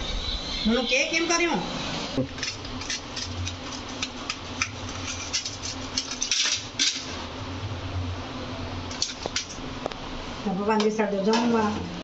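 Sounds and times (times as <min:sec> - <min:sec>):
steady low hum: 0:00.0 - 0:12.0
pizza cutter on a steel plate: 0:02.3 - 0:07.1.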